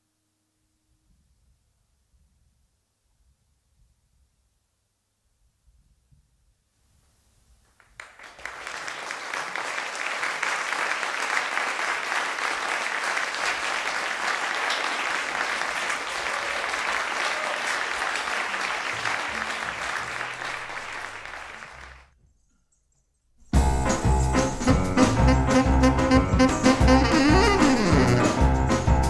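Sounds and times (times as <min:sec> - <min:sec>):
audience applauding: 0:07.8 - 0:22.1, 0:24.6 - 0:28.4.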